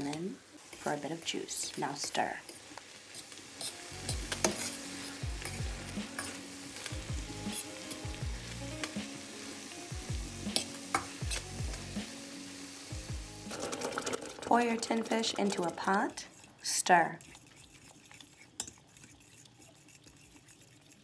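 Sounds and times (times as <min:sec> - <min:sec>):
metal spoon scraping a pan: 0:00.0 - 0:08.2, 0:10.5 - 0:11.6, 0:13.5 - 0:21.0
vegetables sizzling in a pan: 0:00.0 - 0:17.0.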